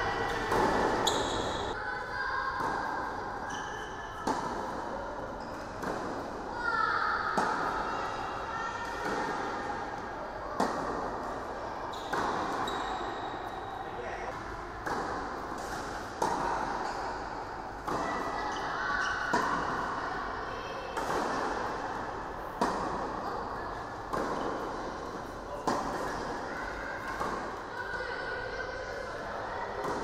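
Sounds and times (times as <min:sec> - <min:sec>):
tennis ball struck by rackets: 0:00.2 - 0:01.8, 0:10.6 - 0:11.2, 0:14.8 - 0:16.9, 0:22.6 - 0:23.2, 0:24.0 - 0:26.4.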